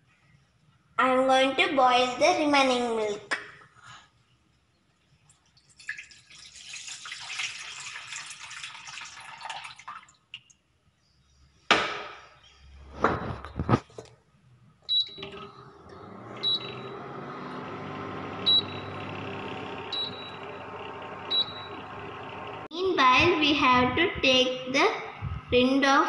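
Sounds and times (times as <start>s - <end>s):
milk pouring into a saucepan: 5.5s - 10.5s
cooktop humming: 12.8s - 14.0s, 15.0s - 24.4s
cooktop beeps: 14.9s - 22.7s.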